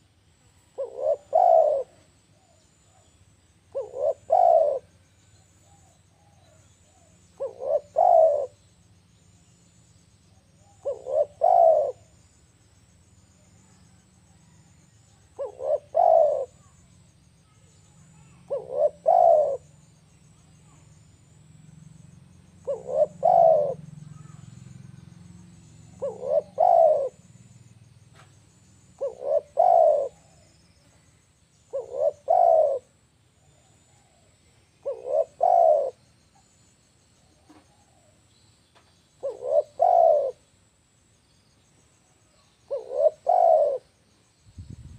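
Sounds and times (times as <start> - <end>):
dove cooing: 0.7 - 3.0, 3.7 - 5.0, 5.6 - 8.6, 10.6 - 12.2, 14.5 - 16.9, 18.2 - 19.8, 22.4 - 27.4, 28.9 - 30.8, 31.6 - 36.1, 39.2 - 40.4, 42.5 - 44.0.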